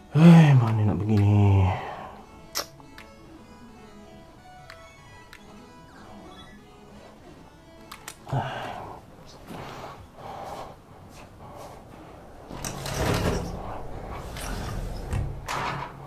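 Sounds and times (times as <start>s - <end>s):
sliding glass window on track: 12.5s - 16.0s.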